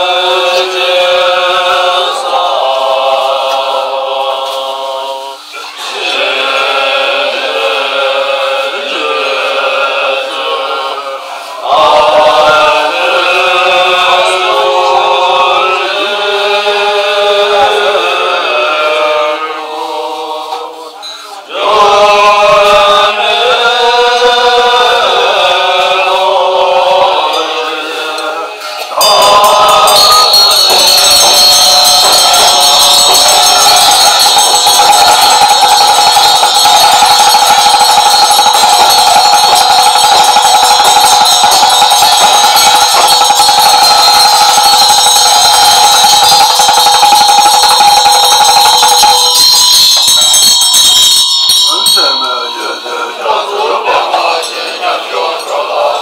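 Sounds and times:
monks chanting together: 0:00.0 - 0:36.6, 0:51.5 - 0:56.0
hand cymbals and bells ringing: 0:28.2 - 0:56.0.

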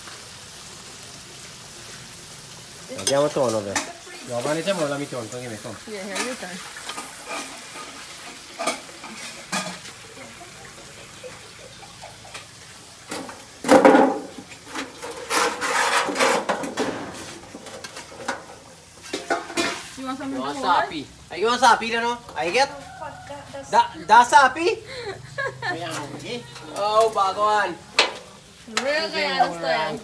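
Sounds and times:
chicken sizzling in a pan: 0:00.0 - 0:30.0
metal spoon scraping a pan: 0:02.9 - 0:04.9, 0:06.0 - 0:10.0, 0:12.2 - 0:20.0.

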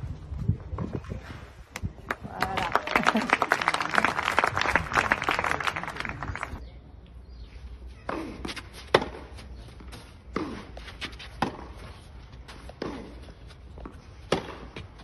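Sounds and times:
crowd clapping: 0:02.1 - 0:06.6
racket hitting tennis ball: 0:08.1 - 0:15.0.

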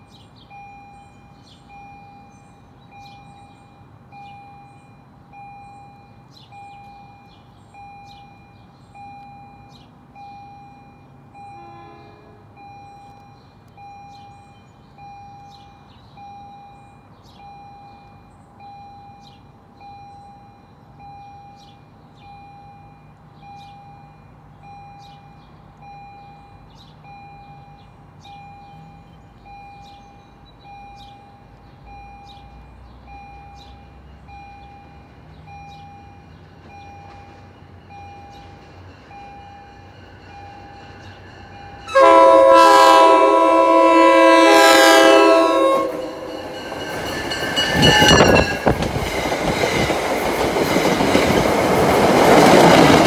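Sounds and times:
railroad crossing bell dinging: 0:00.0 - 0:53.0
train rumble: 0:35.4 - 0:53.0.

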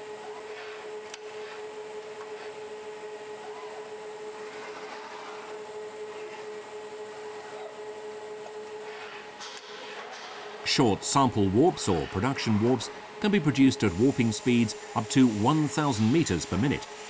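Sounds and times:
machine hum with constant tone: 0:00.0 - 0:17.0
even hiss: 0:13.2 - 0:17.0.

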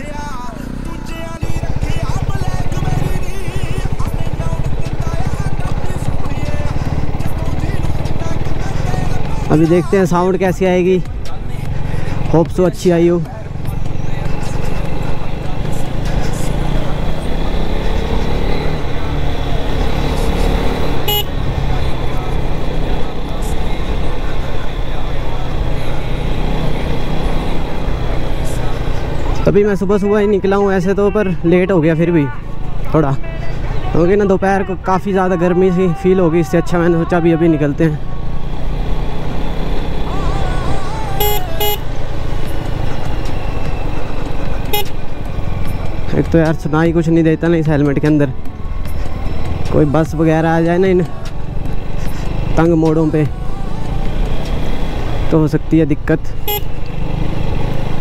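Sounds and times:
motorcycle engine running: 0:00.0 - 0:58.0
vehicle horn toots: 0:21.0 - 0:21.4, 0:41.1 - 0:42.0, 0:44.7 - 0:45.1, 0:56.4 - 0:56.9
short high-pitched beep: 0:41.2 - 0:41.8.

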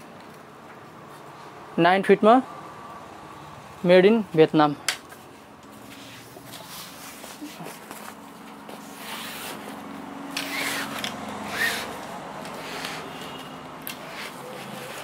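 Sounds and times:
cloth sleeve rubbing and rustling: 0:05.7 - 0:13.4, 0:14.0 - 0:15.0
sharp scrapes: 0:10.4 - 0:15.0.

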